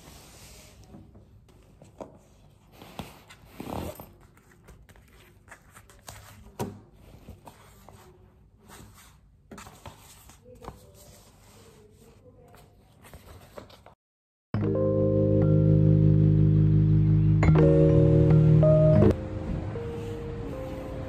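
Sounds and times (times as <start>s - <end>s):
paper sheets rustling: 4.1s - 14.0s.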